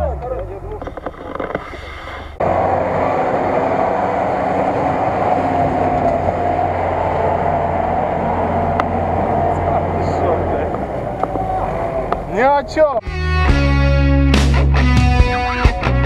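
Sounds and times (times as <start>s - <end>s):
truck engine running hard: 0.0s - 12.8s.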